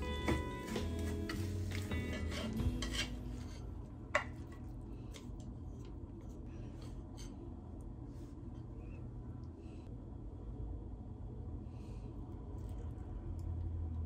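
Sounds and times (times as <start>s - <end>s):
chopsticks scraping frying pan: 1.3s - 3.8s.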